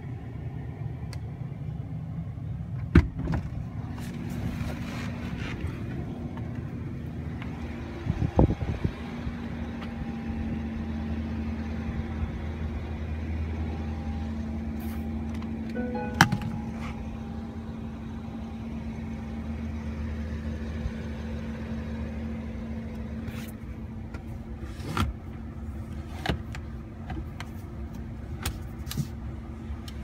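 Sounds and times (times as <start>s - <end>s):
low car cabin hum: 11.0s - 30.0s.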